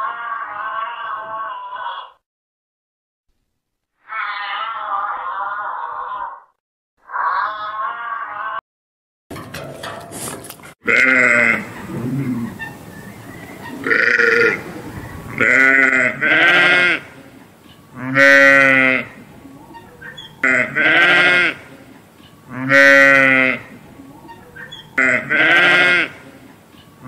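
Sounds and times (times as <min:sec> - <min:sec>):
sheep bleating: 0:00.0 - 0:02.2, 0:04.1 - 0:06.4, 0:07.1 - 0:08.6, 0:10.8 - 0:12.5, 0:13.8 - 0:14.6, 0:15.4 - 0:17.2, 0:18.0 - 0:19.2, 0:20.4 - 0:21.7, 0:22.5 - 0:23.7, 0:25.0 - 0:26.2.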